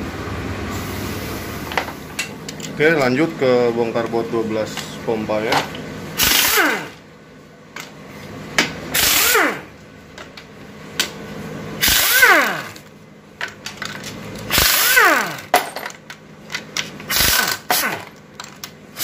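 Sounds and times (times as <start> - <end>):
electric driver motor whining: 11.8 - 12.8.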